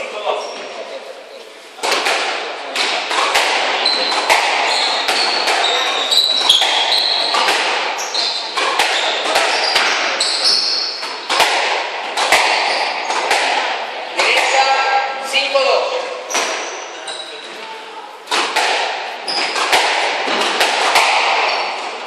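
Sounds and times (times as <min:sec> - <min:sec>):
squash ball cracking off rackets: 0:01.8 - 0:10.4, 0:11.0 - 0:14.9, 0:18.3 - 0:22.0
shoes squeaking on wooden floor: 0:03.2 - 0:11.3, 0:12.3 - 0:13.3, 0:16.0 - 0:17.8, 0:19.2 - 0:20.5, 0:21.3 - 0:22.0.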